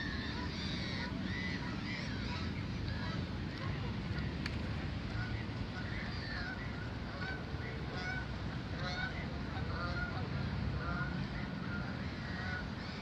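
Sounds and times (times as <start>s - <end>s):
geese honking: 5.2s - 13.0s.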